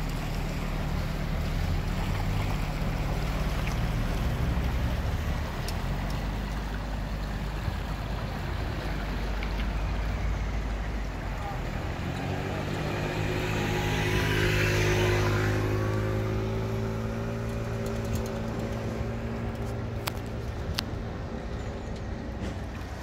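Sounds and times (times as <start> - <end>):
boat engine droning: 0.0 - 23.0.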